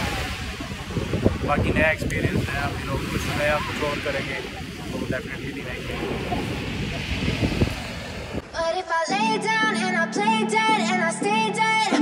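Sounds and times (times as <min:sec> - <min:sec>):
background pop music: 0:08.4 - 0:12.0.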